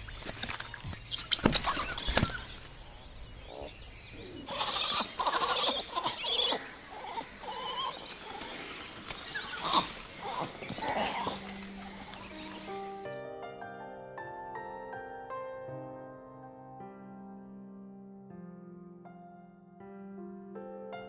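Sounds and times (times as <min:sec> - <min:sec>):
monkeys calling: 0:00.0 - 0:13.0.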